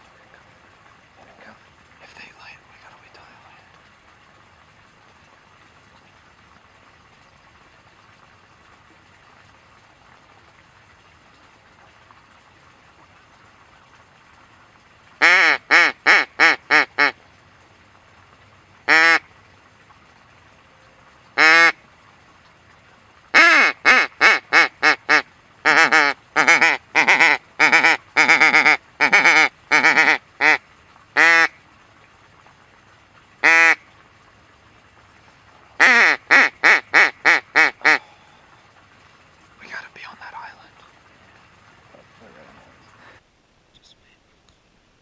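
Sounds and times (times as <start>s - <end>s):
duck quacking: 15.2s - 17.1s, 18.9s - 19.2s, 21.4s - 21.8s, 23.4s - 30.6s, 31.2s - 31.5s, 33.4s - 33.8s, 35.8s - 38.0s.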